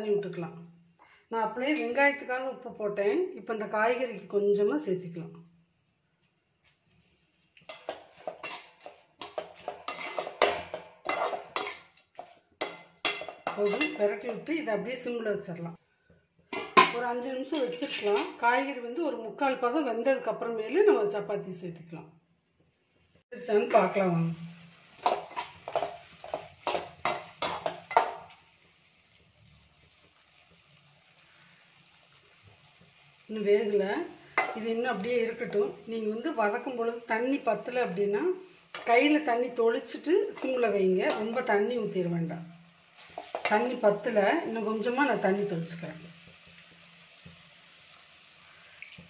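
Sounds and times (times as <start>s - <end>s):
metal spatula scraping a pan: 7.7s - 14.4s, 16.6s - 18.4s, 24.9s - 28.3s, 34.3s - 34.7s, 38.7s - 39.1s, 40.2s - 41.7s, 43.0s - 43.8s.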